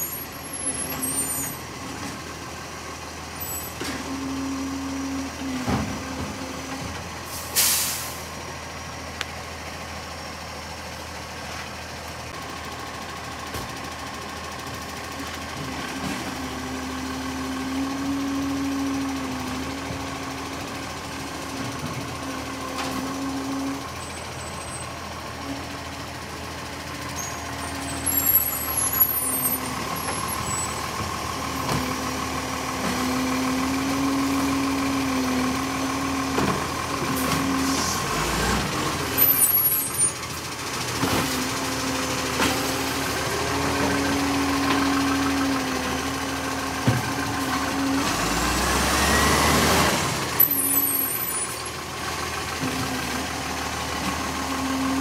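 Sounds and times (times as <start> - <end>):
garbage truck engine running: 0.0 - 55.0
air brake hisses: 7.3 - 8.3.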